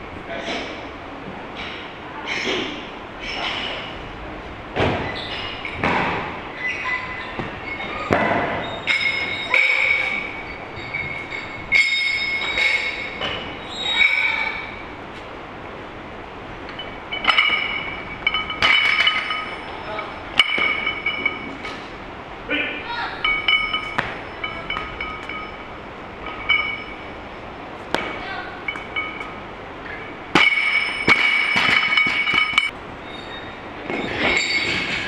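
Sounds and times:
metal weight plates clinking: 8.6 - 14.4, 16.7 - 21.8, 23.2 - 27.4, 28.6 - 32.8.

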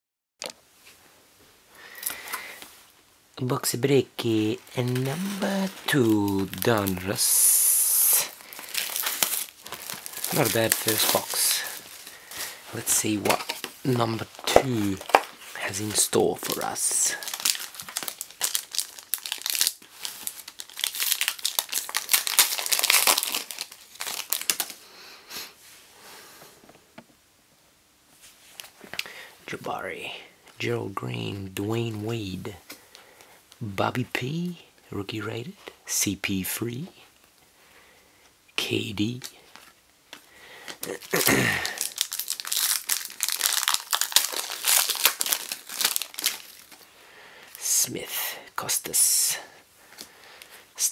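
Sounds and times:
foil wrapper crinkling and tearing: 4.2 - 24.8, 39.2 - 46.9.

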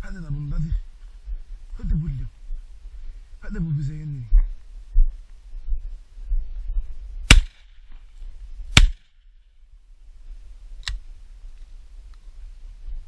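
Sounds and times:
shotgun shots with echo: 7.3 - 7.8, 8.7 - 9.2.

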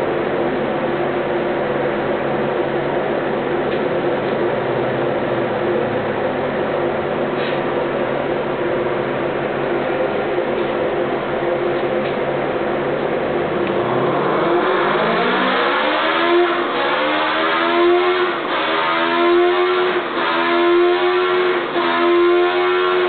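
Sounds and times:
motorcycle engine revving hard: 13.4 - 23.0.

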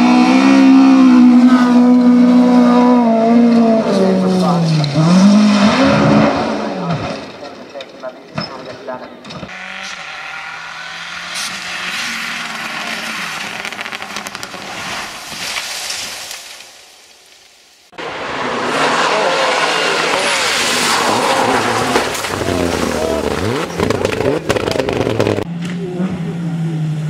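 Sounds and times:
rally car engine revving: 0.0 - 7.8, 9.2 - 15.1, 18.0 - 27.0
tyres skidding on gravel: 9.5 - 17.4, 18.0 - 25.5.

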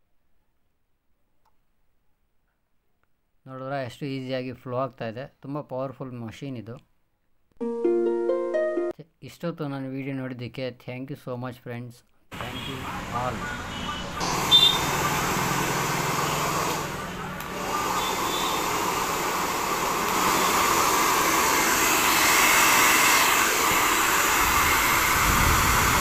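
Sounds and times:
hair dryer blowing air: 14.1 - 26.0
hair dryer switch click: 20.0 - 20.4.

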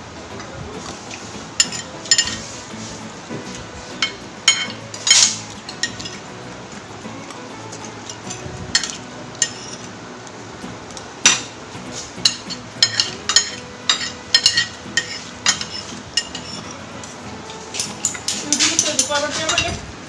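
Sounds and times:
fork clinking on plate: 1.6 - 2.5, 4.0 - 6.2, 8.1 - 9.9, 12.2 - 16.7.

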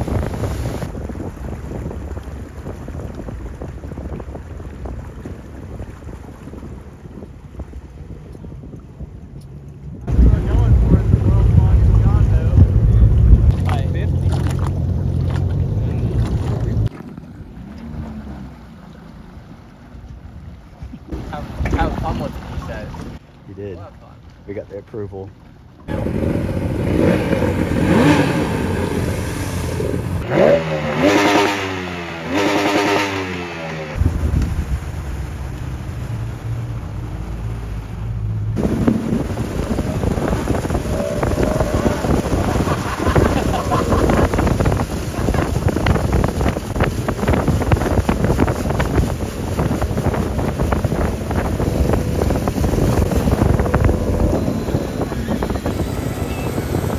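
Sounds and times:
rush of spray: 0.0 - 3.7, 25.9 - 56.9
wind noise on microphone: 0.0 - 17.1, 25.9 - 36.3, 38.5 - 56.9
boat engines idling: 0.0 - 56.9
outboard motor running: 0.0 - 56.9.

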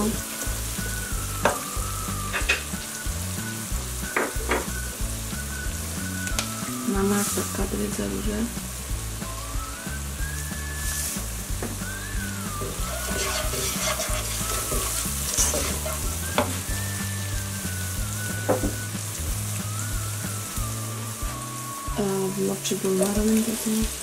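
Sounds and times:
masala sizzling in oil: 0.0 - 24.0
wooden spoon stirring and scraping: 12.7 - 16.7.

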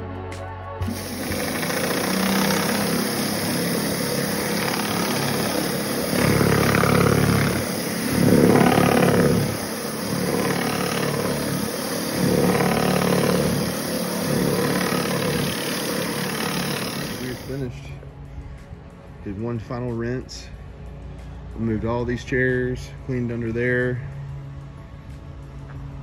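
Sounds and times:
pressure washer spray roaring: 0.8 - 17.6.

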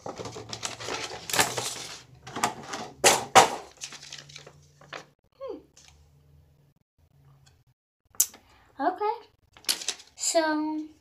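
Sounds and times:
plastic packaging crinkling: 0.0 - 2.8, 3.6 - 5.1.

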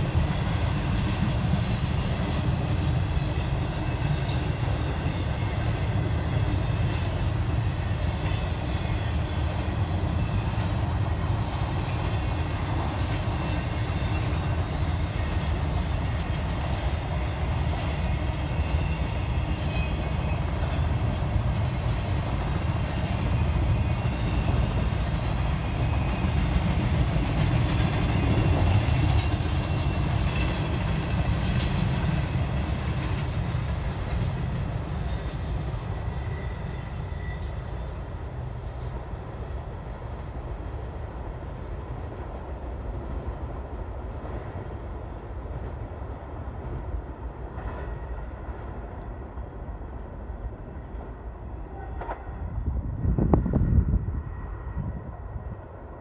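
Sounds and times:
freight train rolling past: 0.0 - 56.0.

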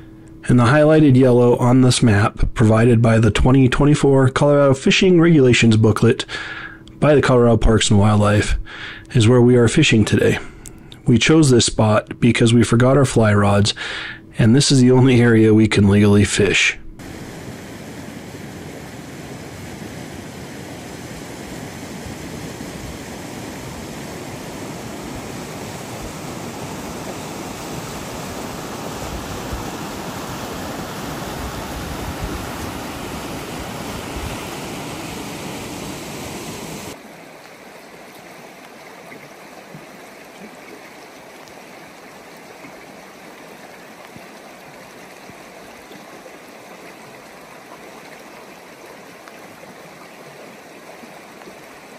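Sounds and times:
river rushing over rapids: 17.0 - 39.7.

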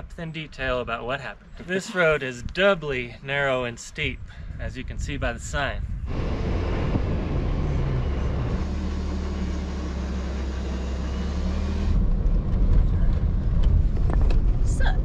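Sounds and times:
road and wind noise: 0.0 - 15.0
car engine drone: 6.0 - 15.0.

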